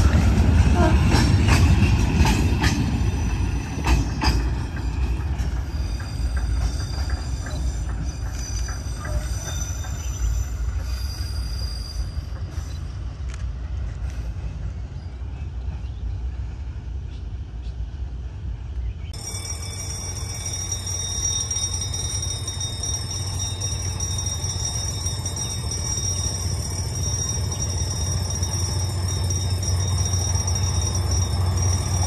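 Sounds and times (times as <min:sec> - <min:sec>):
train wheels clicking over rail joints: 0:00.0 - 0:14.8, 0:19.4 - 0:32.0
train rumble: 0:00.0 - 0:32.0
high wheel squeal: 0:05.0 - 0:13.0.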